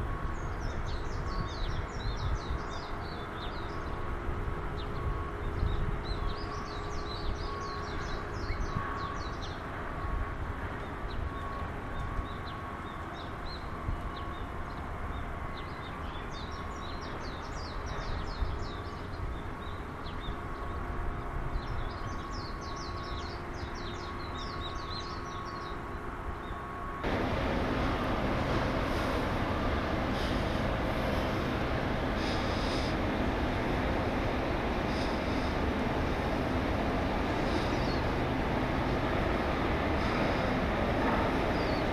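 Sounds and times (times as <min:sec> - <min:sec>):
small birds twittering: 0:26.4 - 0:41.9
low outdoor rumble: 0:27.0 - 0:41.9
rushing noise: 0:27.0 - 0:41.9.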